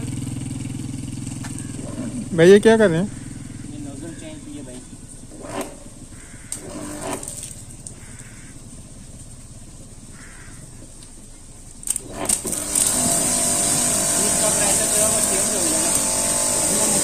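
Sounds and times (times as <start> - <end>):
electric pressure washer running: 0.0 - 3.7, 5.3 - 7.8, 11.9 - 17.0
pressure washer gun clicks: 11.8 - 17.0.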